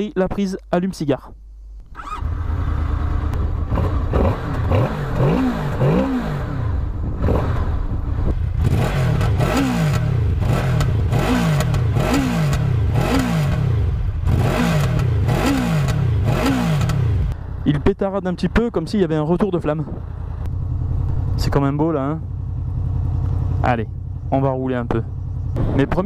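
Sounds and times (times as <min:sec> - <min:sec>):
motorcycle engine revving: 0:01.8 - 0:17.4, 0:20.0 - 0:26.0
exhaust popping: 0:03.2 - 0:17.9.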